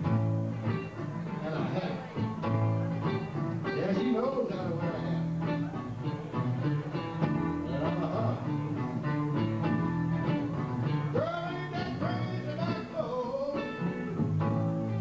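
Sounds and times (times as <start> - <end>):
guitars playing: 0.0 - 15.0
man singing: 3.6 - 5.6, 7.5 - 8.8, 10.8 - 14.2.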